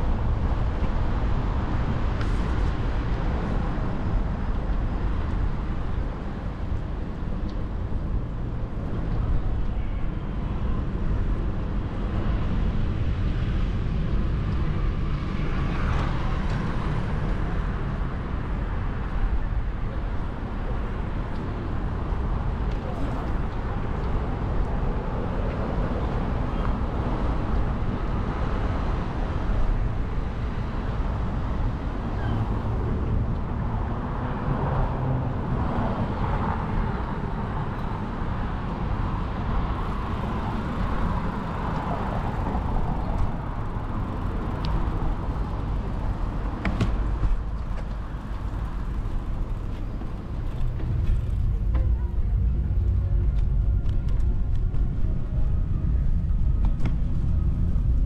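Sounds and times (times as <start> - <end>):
cars passing: 10.3 - 58.0
steady low rumble: 39.6 - 58.0.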